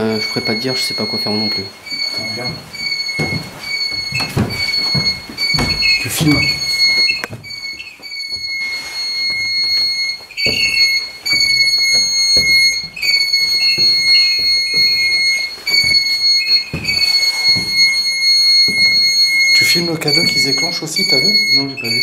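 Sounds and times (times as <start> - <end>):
electronic alarm tone: 0.0 - 22.0
high electronic chirps: 0.0 - 22.0.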